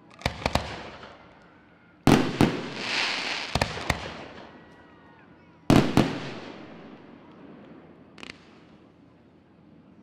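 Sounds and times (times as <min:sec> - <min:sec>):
firework hiss: 0:02.5 - 0:03.8.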